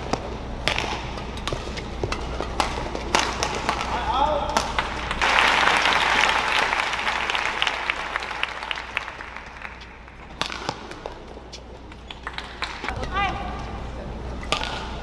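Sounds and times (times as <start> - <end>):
racket striking shuttlecock: 0.0 - 5.1, 9.7 - 13.6, 14.4 - 15.0
crowd cheering and applause: 4.7 - 10.2.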